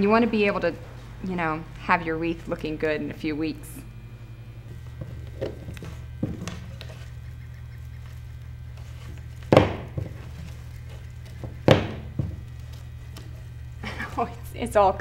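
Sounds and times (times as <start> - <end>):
steady low hum: 0.0 - 15.0
knocks on a worktable: 9.5 - 10.2, 11.6 - 12.4.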